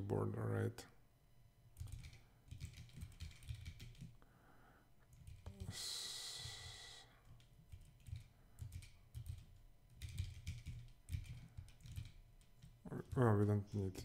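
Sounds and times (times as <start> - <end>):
typing on computer keyboard: 1.8 - 4.2, 5.0 - 5.7, 7.2 - 14.0.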